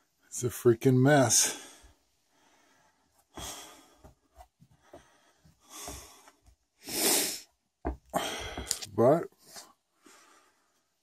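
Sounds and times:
person exhaling: 0:08.1 - 0:08.9.

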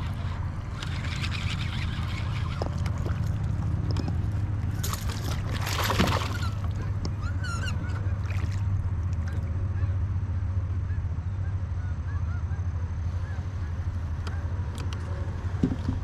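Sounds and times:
bird calling: 0:00.0 - 0:03.2, 0:05.8 - 0:10.0.

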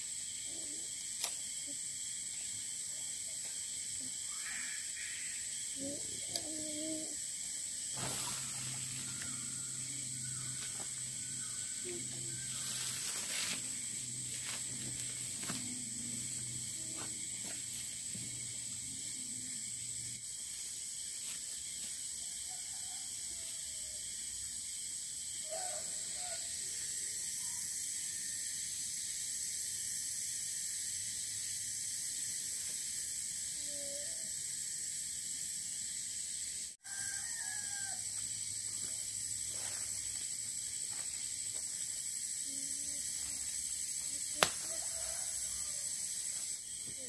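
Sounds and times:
insect drone: 0:00.0 - 0:47.0
faint animal calls: 0:04.0 - 0:07.2.

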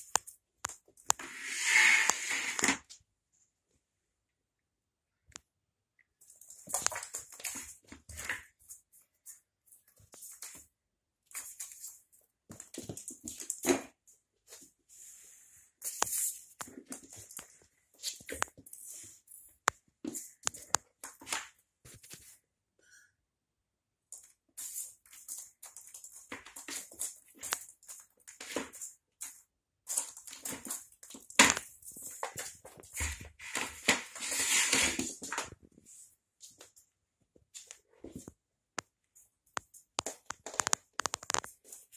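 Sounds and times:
plastic tray scraping on floor: 0:01.2 - 0:02.8, 0:33.0 - 0:35.5.

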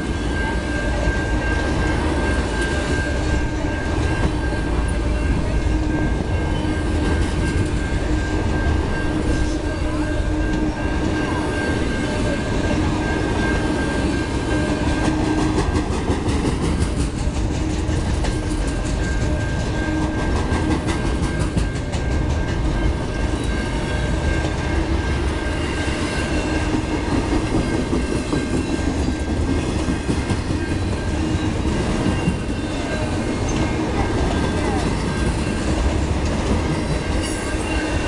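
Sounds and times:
train wheels rumbling on rail: 0:00.0 - 0:38.0.

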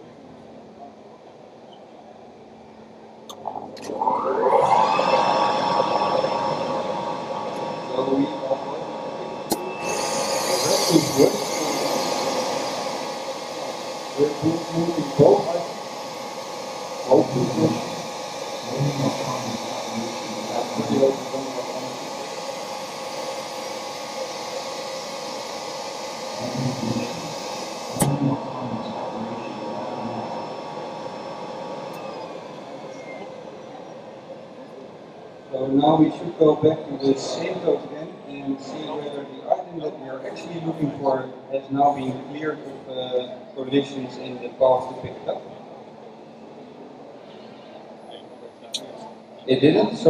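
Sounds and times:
suction gripper vacuum whine: 0:03.3 - 0:34.8.

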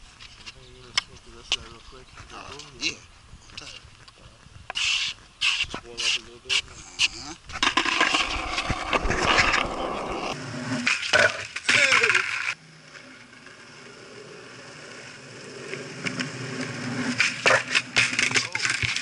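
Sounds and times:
skateboard wheels rolling on concrete: 0:00.0 - 0:19.0
wind noise on microphone: 0:03.1 - 0:10.4.

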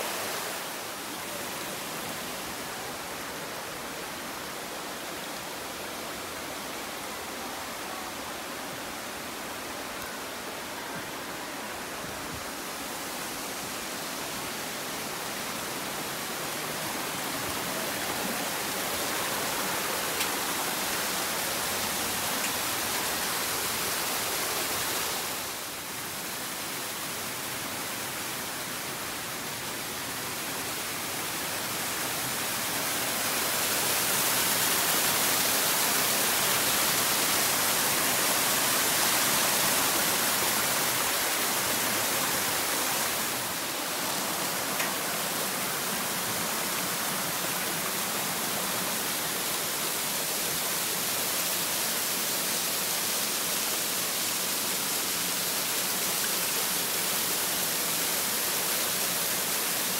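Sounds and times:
mountain stream rushing: 0:00.0 - 0:59.9.

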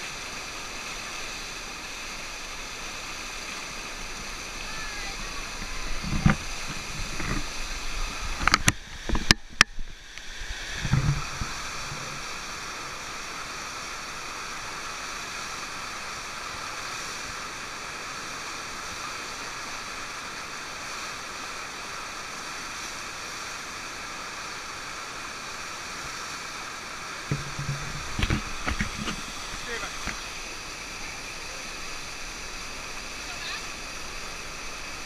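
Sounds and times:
water rushing over a ramp: 0:00.0 - 0:35.0
sharp knocks and thumps: 0:10.8 - 0:12.1, 0:27.3 - 0:30.2.

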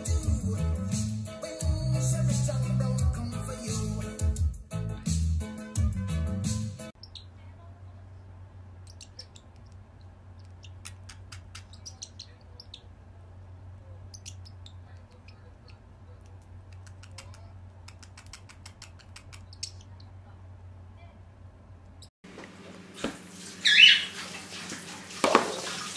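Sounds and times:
parrot chirps and clicks: 0:08.8 - 0:12.9, 0:14.0 - 0:20.2.

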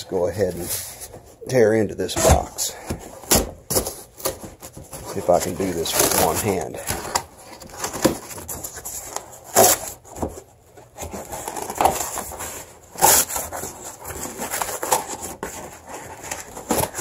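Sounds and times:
cardboard box ripping: 0:03.2 - 0:10.4, 0:11.0 - 0:17.0.

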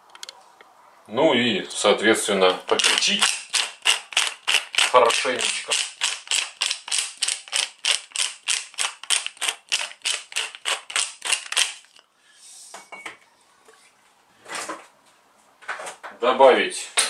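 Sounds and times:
pepper mill grinding: 0:02.6 - 0:12.0.

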